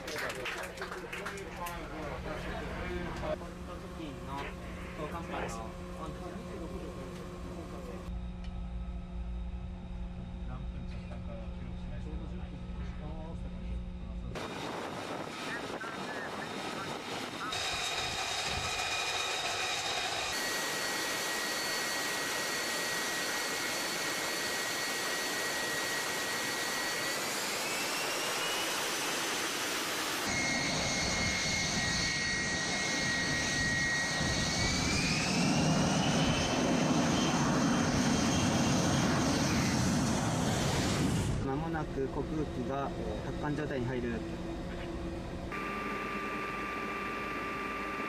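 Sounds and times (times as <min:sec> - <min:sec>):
jet engine turbine whine: 0:00.9 - 0:48.0
deep engine rumble: 0:01.4 - 0:19.0.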